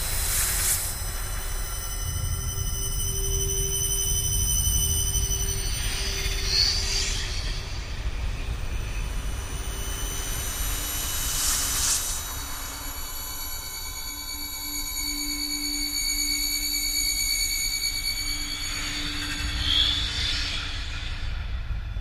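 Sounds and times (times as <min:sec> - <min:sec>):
airy swells of hiss: 0:10.9 - 0:13.2.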